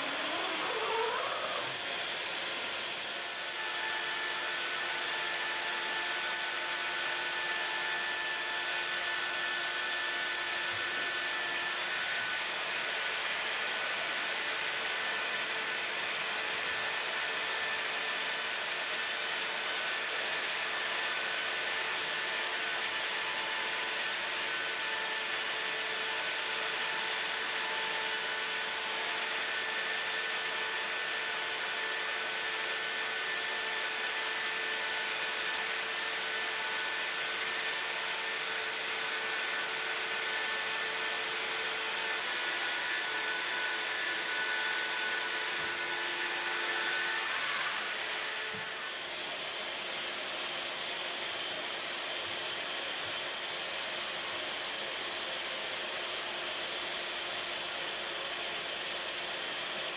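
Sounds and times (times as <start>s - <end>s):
faint motor tones: 0.0s - 4.3s
hot-air blower whirring hiss: 0.0s - 59.9s.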